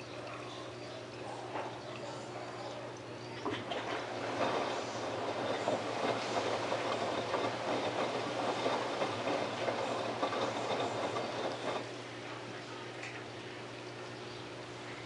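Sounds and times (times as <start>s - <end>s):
washing machine drum churning: 0.0s - 12.6s
low motor hum: 0.0s - 15.0s
clatter in drum: 3.5s - 11.9s.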